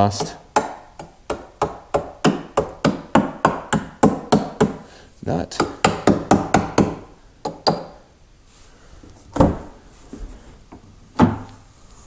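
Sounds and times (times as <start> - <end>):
hammer knocking on sheet metal: 0.1 - 4.8, 5.6 - 8.0.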